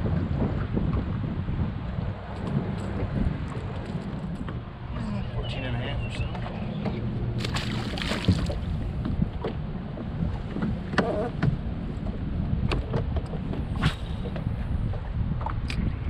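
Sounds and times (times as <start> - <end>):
waves lapping against boat hull: 0.0 - 16.0
wind buffeting microphone: 0.0 - 16.0
knocks and clicks on boat deck: 2.2 - 5.0, 6.2 - 7.5, 8.2 - 16.0.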